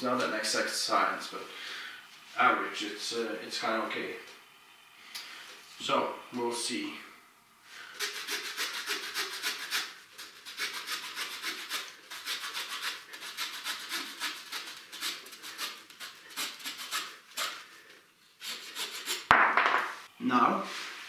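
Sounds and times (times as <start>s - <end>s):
hand saw rasping through wood: 8.0s - 17.6s, 18.4s - 19.3s.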